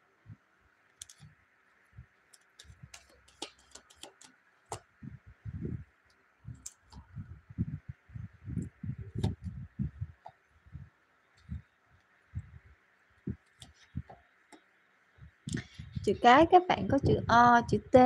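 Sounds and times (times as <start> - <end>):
cards clicking and tapping: 2.3 - 4.9.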